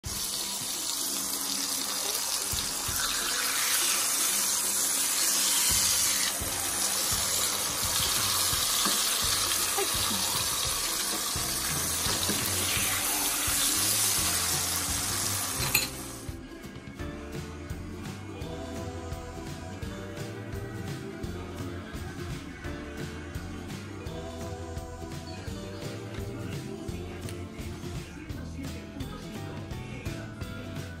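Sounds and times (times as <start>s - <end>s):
tortillas sizzling in hot oil: 0.0s - 16.4s.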